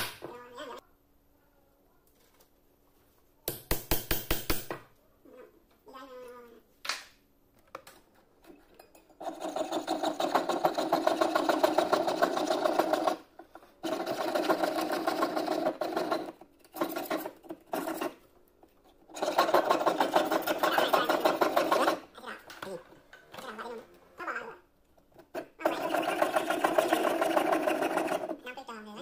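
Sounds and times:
saw blade rasping on metal: 0:09.2 - 0:13.2, 0:19.1 - 0:22.0.

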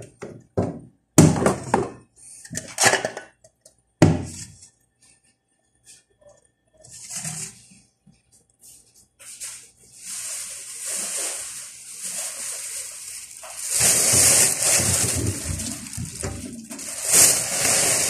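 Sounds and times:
dishes clattering and scraping: 0:01.5 - 0:03.4.

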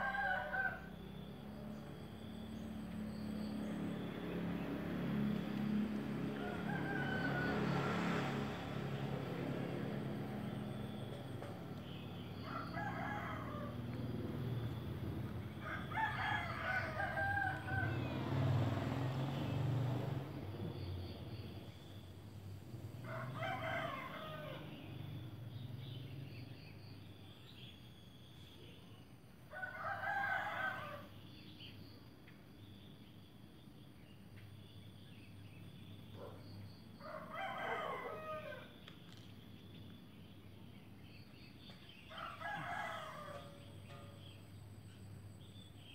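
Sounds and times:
rooster crowing: 0:00.0 - 0:01.2, 0:06.2 - 0:08.5, 0:12.4 - 0:14.8, 0:15.5 - 0:19.2, 0:23.0 - 0:25.0, 0:29.5 - 0:31.2, 0:37.0 - 0:38.8, 0:42.1 - 0:44.3.

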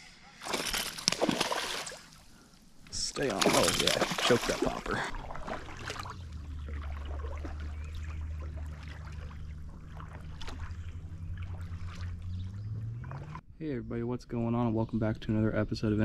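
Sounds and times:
water splashes and drips: 0:00.4 - 0:02.2, 0:03.0 - 0:13.4.

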